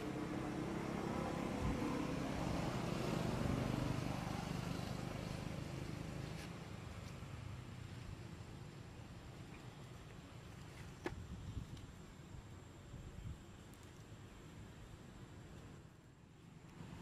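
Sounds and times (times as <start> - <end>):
vehicle engine passing: 0.0 - 6.5.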